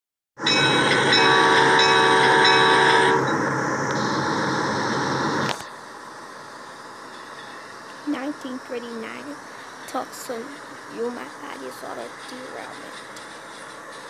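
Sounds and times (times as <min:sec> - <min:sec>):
moving train rumble: 0:00.4 - 0:14.0
train horn chord: 0:00.5 - 0:03.3.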